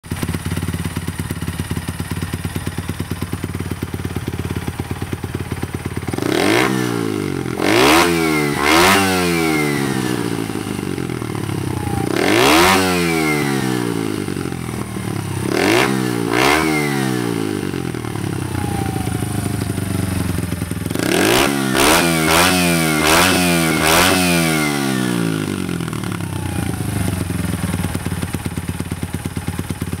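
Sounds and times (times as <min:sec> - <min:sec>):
motorcycle engine idling: 0:00.0 - 0:30.0.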